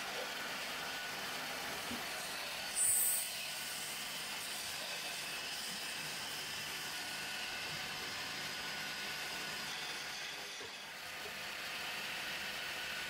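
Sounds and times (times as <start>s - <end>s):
wood lathe whirring: 0.1s - 13.0s.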